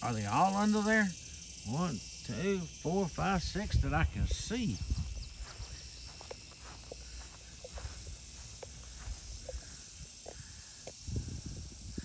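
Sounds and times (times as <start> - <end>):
insects droning: 0.0 - 12.0
footsteps through grass: 3.4 - 9.8.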